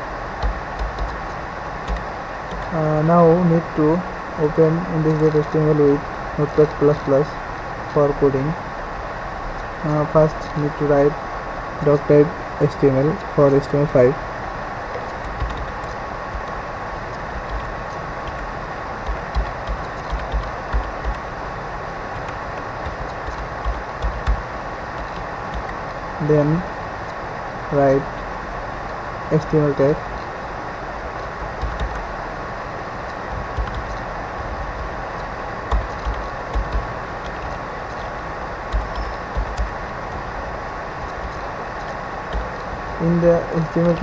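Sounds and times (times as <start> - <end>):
faint steady tone: 0.0 - 44.0
steady hiss: 0.0 - 44.0
keyboard keystrokes: 0.4 - 2.7, 15.0 - 21.3, 22.1 - 25.9, 31.5 - 32.1, 33.1 - 34.1, 34.8 - 38.1, 38.7 - 40.3.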